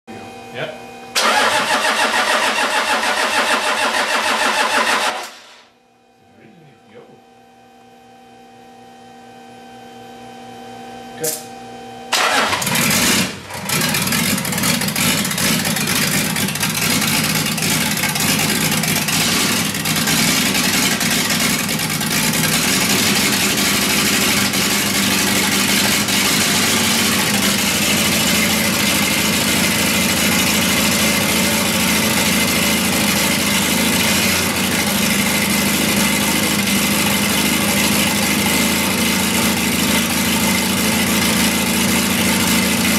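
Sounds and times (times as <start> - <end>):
diesel engine idling: 12.2 - 42.9.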